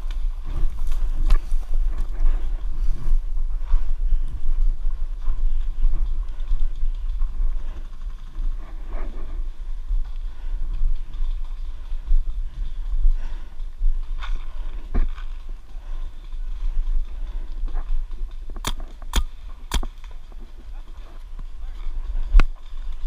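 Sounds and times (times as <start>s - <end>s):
wind noise on camera: 0.0s - 23.0s.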